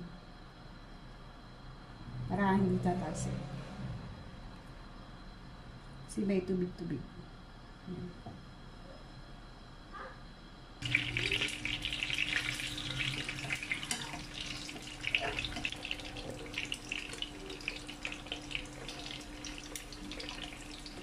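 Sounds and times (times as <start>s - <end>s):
eggs sizzling in hot oil: 10.8s - 21.0s.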